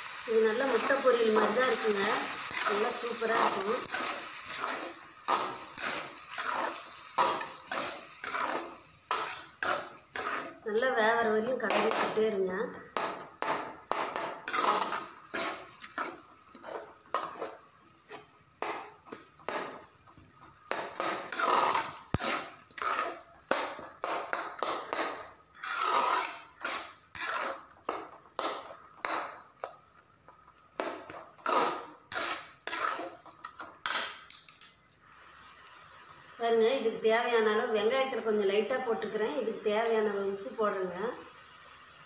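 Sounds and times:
frying sizzle: 0.0 - 42.0
metal ladle scraping a pot: 1.4 - 10.6, 14.4 - 18.3, 21.0 - 23.3, 25.0 - 27.7, 31.4 - 33.1.

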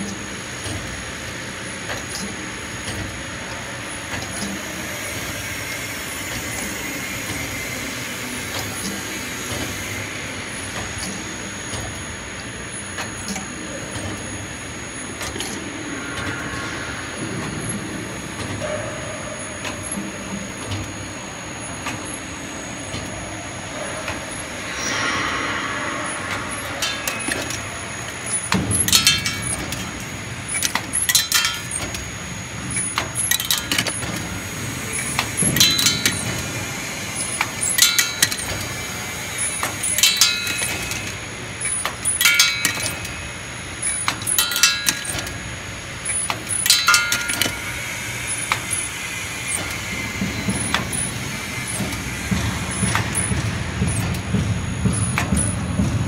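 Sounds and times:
machine clicks and knocks: 0.0 - 1.0, 1.8 - 7.8, 10.7 - 14.4, 15.1 - 23.2, 26.1 - 56.0
machine running hum: 0.0 - 56.0
thin high whine: 23.2 - 30.3.

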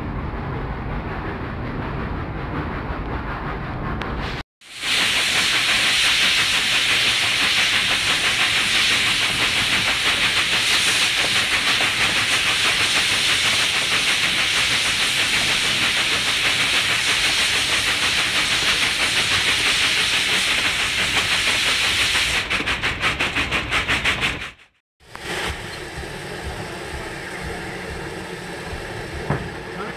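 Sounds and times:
steam train hissing: 0.4 - 29.9
faint rapid pulsing: 25.3 - 29.9.

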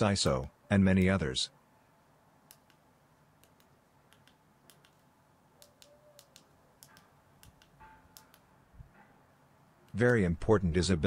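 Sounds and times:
remote push buttons clicking: 3.4 - 5.0, 5.6 - 8.5.

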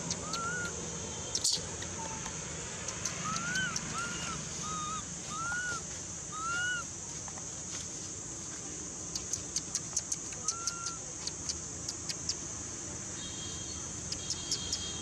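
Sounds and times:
baby monkey coo calls: 0.0 - 6.9, 9.2 - 12.3
steady high hiss: 0.0 - 15.0.

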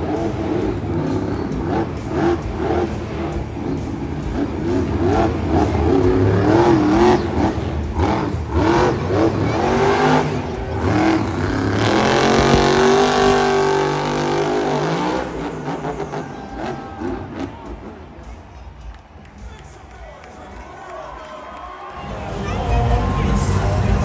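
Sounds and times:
monster truck engine revving: 0.0 - 18.4.

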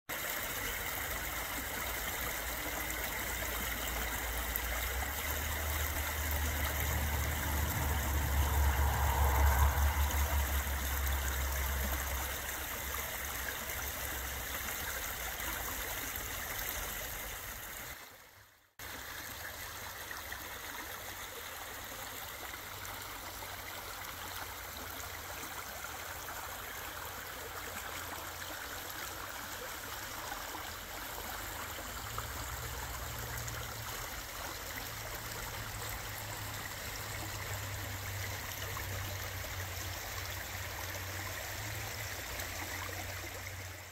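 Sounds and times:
creek babbling over stones: 0.1 - 43.9
low rumble: 6.0 - 12.3.

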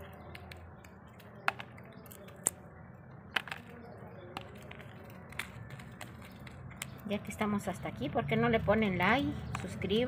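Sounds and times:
dried chiles crackling when torn: 0.0 - 7.1.

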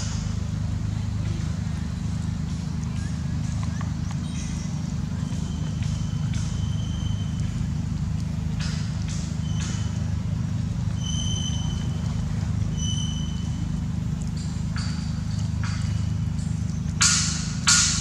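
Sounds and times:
low motor hum: 0.0 - 18.0.

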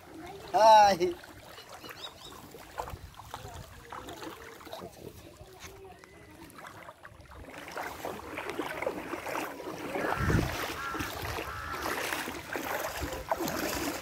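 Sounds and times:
water moving: 0.0 - 14.0
wind blowing on microphone: 10.0 - 11.8.

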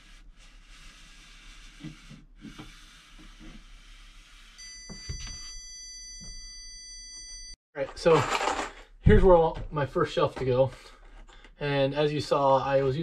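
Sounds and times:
stud finder scraping on drywall: 0.0 - 4.6
steady high beep: 4.6 - 7.6.

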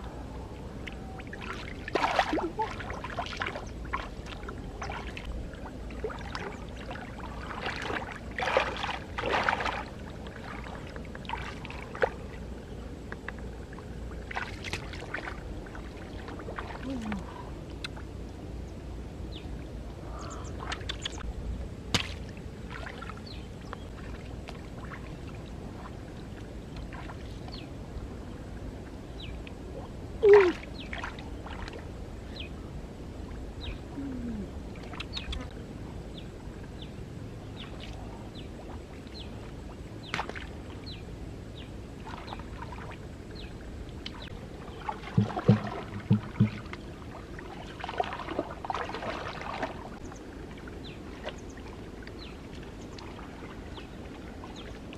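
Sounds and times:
muddy water sloshing and splashing: 0.8 - 18.2, 20.0 - 28.2, 29.6 - 32.5, 34.0 - 35.6, 37.3 - 54.9
small drips and clicks: 13.1 - 13.5, 20.6 - 21.2, 34.8 - 35.6, 43.9 - 44.4, 52.0 - 53.2.

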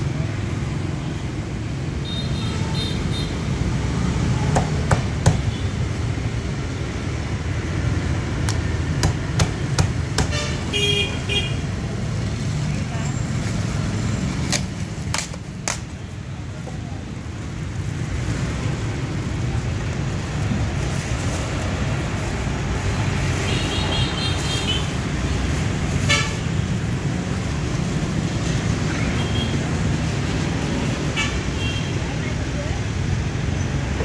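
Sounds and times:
street traffic rumble: 0.0 - 34.0
sharp knocks: 8.5 - 10.4.

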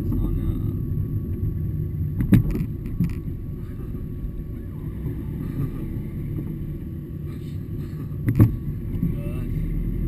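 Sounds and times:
car engine and tyre rumble: 0.0 - 10.0.

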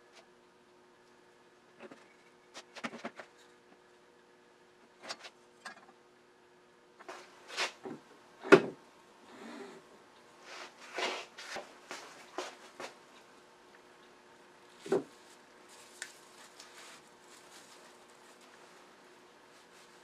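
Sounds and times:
handling rustle: 14.8 - 20.0.

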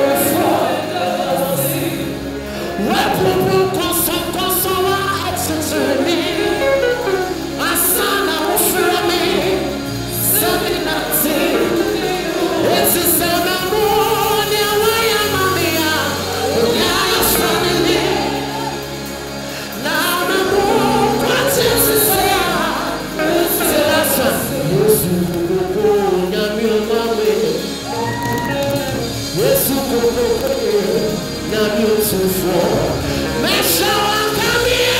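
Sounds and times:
man singing into a microphone: 0.0 - 18.5, 19.6 - 34.9
band music: 0.0 - 34.9
bass line: 0.0 - 34.9.

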